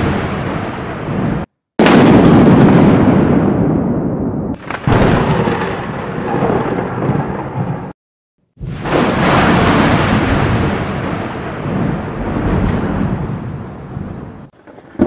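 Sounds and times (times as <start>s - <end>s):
rain: 0.0s - 1.5s, 4.6s - 8.0s, 8.6s - 15.0s
thunder rolling: 0.0s - 15.0s.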